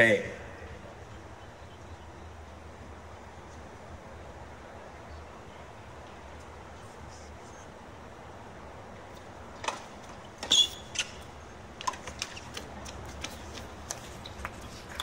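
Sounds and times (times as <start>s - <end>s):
shoe squeak: 10.4s - 11.3s, 12.1s - 12.7s
crowd clapping: 13.9s - 15.0s.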